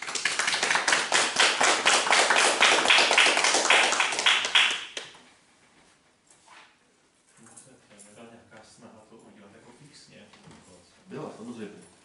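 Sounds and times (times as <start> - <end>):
audience applauding: 0.0 - 5.2.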